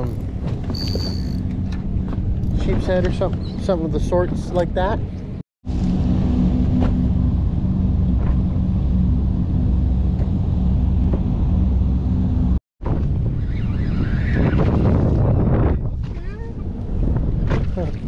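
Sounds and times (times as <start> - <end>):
diesel engines droning: 0.0 - 12.6
wind buffeting microphone: 12.8 - 18.0.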